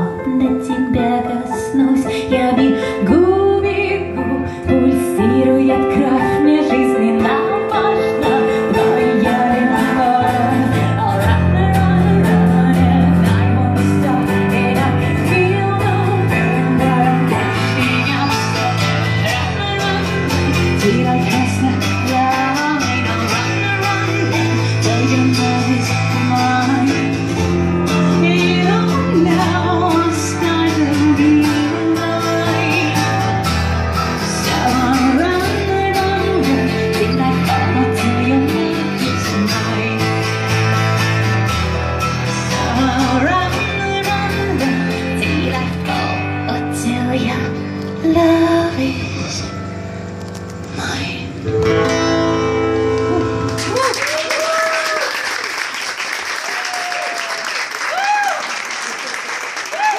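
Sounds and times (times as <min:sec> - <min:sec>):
person singing: 0:00.0 - 0:40.8, 0:42.0 - 0:49.8
keyboard: 0:00.0 - 0:54.2
acoustic guitar strumming: 0:06.8 - 0:53.8
held bass notes: 0:40.8 - 0:53.9.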